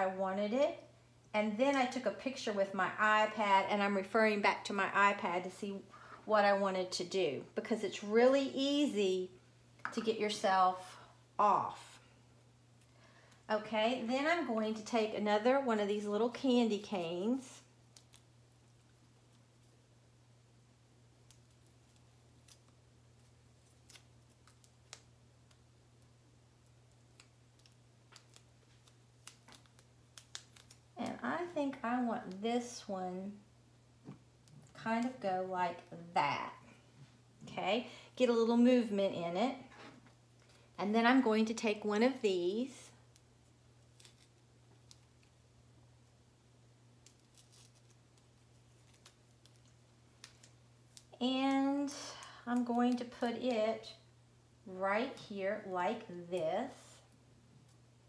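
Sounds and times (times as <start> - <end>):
faint clicks and rustles: 47.0 - 53.3.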